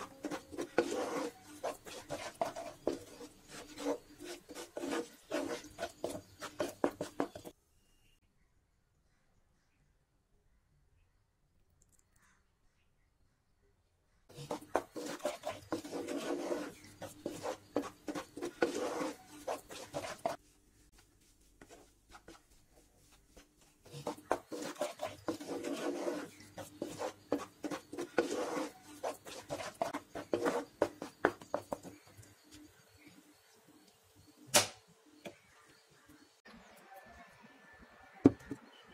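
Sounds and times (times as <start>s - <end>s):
wooden spatula scraping pan: 0.0s - 7.5s, 14.3s - 21.0s, 21.6s - 32.1s
sharp click: 34.5s - 34.8s.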